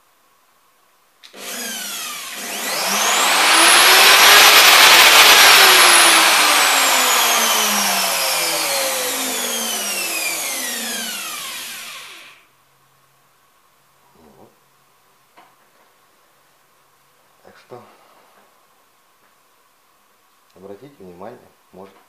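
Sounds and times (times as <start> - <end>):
hand router motor whine: 1.3 - 12.4.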